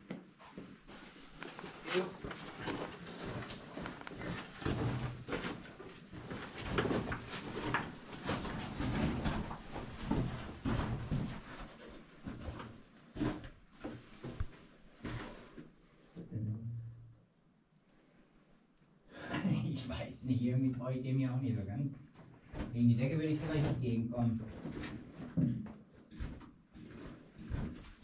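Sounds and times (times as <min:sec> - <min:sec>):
footsteps crunching on rubble: 0:00.8 - 0:15.4.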